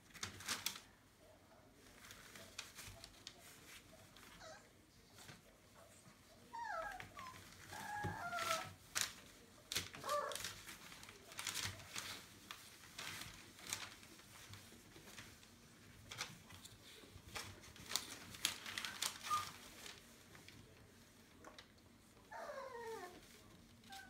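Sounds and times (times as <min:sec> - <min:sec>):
newspaper crinkling: 0:00.0 - 0:04.5, 0:06.5 - 0:24.0
paws scratching: 0:01.8 - 0:24.0
puppies whining: 0:04.3 - 0:04.7, 0:06.4 - 0:08.8, 0:18.9 - 0:19.8, 0:22.2 - 0:24.0.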